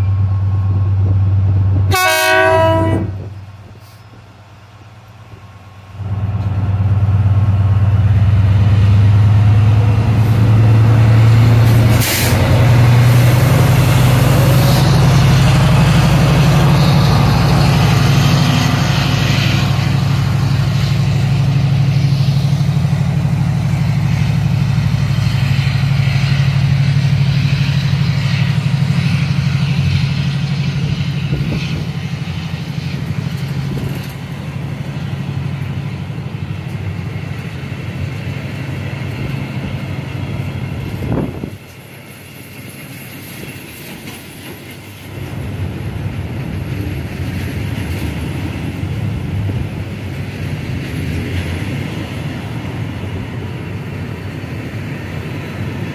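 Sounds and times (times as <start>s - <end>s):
diesel train engine running: 0.0s - 55.9s
brief hiss: 3.7s - 4.2s, 11.9s - 12.5s.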